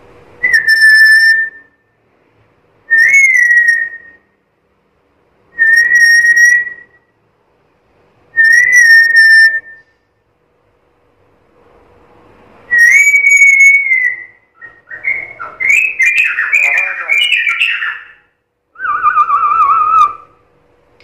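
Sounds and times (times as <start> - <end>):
parrot whistling: 0.4 - 1.8, 2.9 - 4.3, 5.6 - 7.0, 8.4 - 9.9, 12.7 - 20.4.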